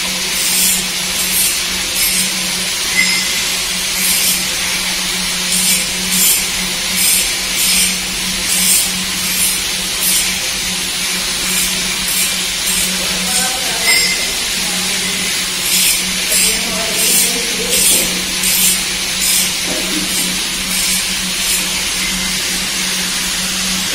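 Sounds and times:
hydraulic lift hissing: 0.0 - 23.9
steady low hum: 0.0 - 23.9.

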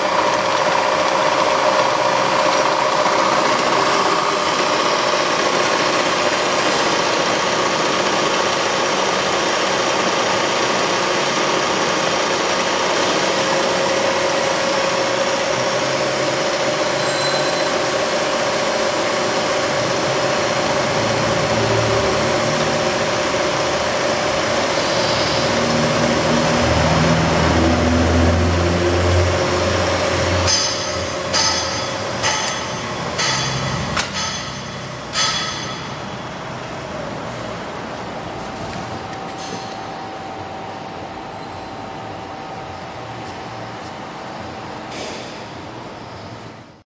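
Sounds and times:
sharp clicks and knocks of controls: 30.1 - 36.2.

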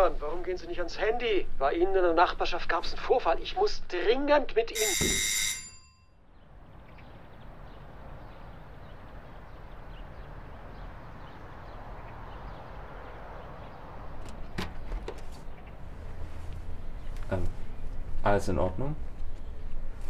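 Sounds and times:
outdoor street ambience: 0.0 - 20.0
brief pitched tone: 4.8 - 6.0.

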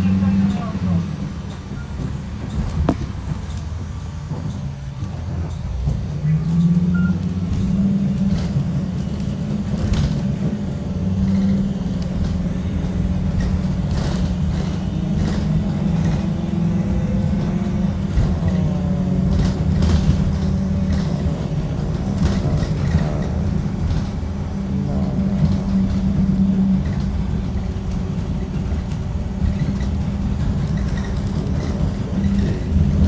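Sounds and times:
bus engine and road drone: 0.0 - 33.0
knocks and rattles: 7.5 - 33.0.

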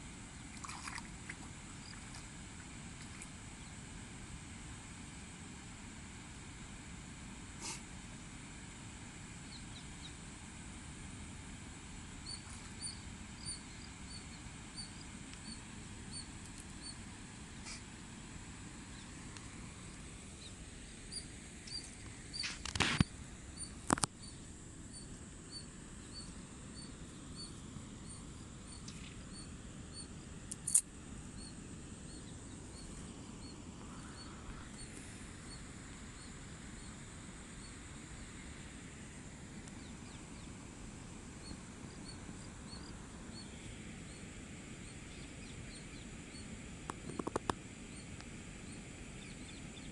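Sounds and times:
outdoor hush: 0.0 - 49.9
faint high chirp: 12.2 - 17.8, 20.4 - 30.8.

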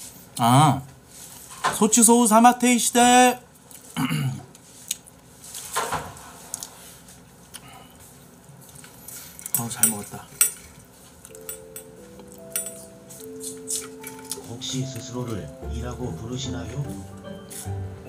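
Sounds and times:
tableware clinking: 9.4 - 14.6.

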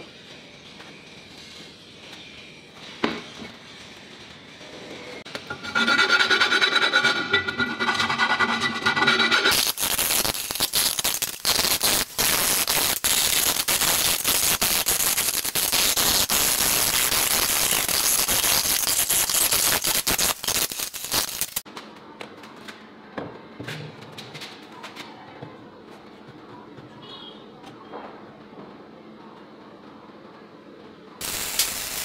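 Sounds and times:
hand file rasping on steel: 5.5 - 9.6.

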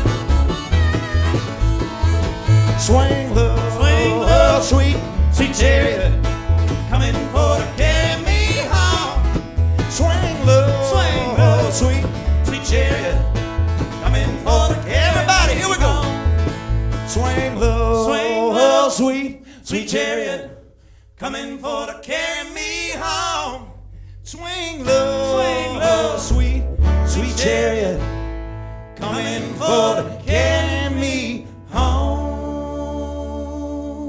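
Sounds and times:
lead line with bending notes: 0.0 - 6.8
strummed guitar: 0.0 - 18.3, 24.8 - 33.0
upright bass plucking: 0.0 - 18.9, 22.5 - 34.0.

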